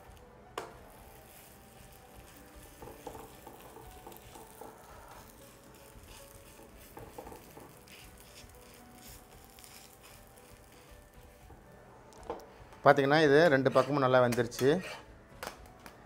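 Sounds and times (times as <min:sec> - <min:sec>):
metal spatula tapping on griddle: 0:02.8 - 0:04.8, 0:06.5 - 0:08.0, 0:14.2 - 0:14.7.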